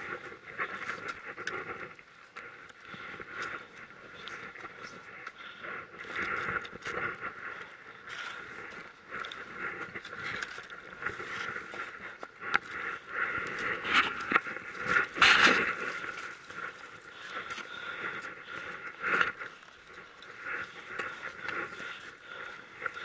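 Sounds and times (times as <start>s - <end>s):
person breathing hard: 0.0s - 23.0s.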